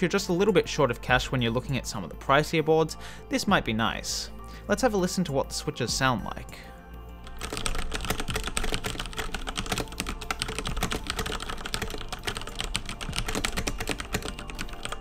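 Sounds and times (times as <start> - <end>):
background music: 0.0 - 15.0
mechanical keyboard fast typing: 7.3 - 15.0.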